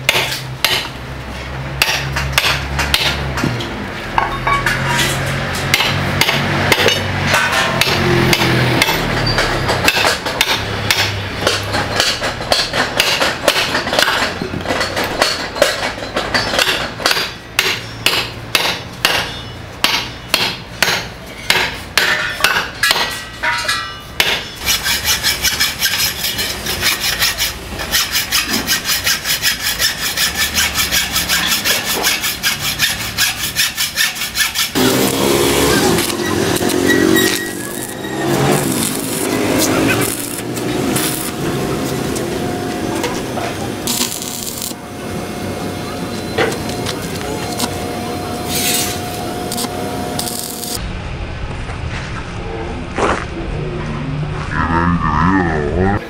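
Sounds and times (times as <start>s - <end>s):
hammer striking iron on steel: 0.0s - 1.0s, 1.8s - 3.6s, 4.2s - 44.8s
hand saw cutting iron rod: 4.6s - 42.3s, 42.9s - 44.8s, 48.4s - 50.8s.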